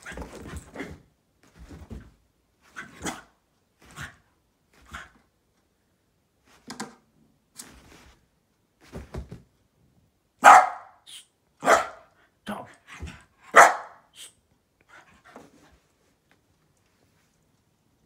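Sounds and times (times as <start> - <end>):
dog barking loudly: 10.4 - 11.0, 11.6 - 12.1, 13.4 - 14.1.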